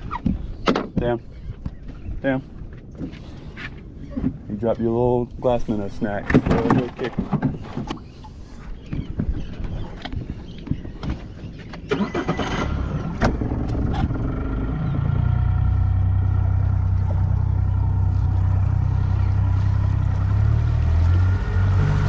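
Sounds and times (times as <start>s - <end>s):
outboard motor running: 12.8s - 21.8s.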